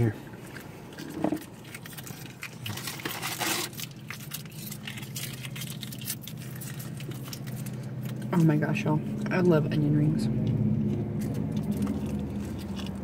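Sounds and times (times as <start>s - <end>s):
steady low hum: 0.0s - 13.0s
plastic packet crinkling: 0.4s - 8.6s, 10.9s - 13.0s.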